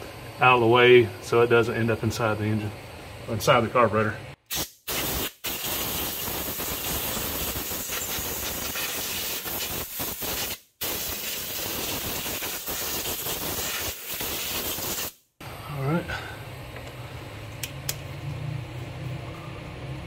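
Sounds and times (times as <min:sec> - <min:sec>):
compressed air hissing: 0:04.5 - 0:15.2.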